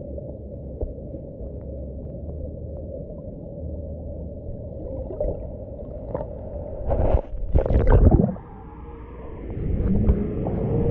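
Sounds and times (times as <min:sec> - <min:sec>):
water sloshing and gurgling: 0:04.2 - 0:10.7.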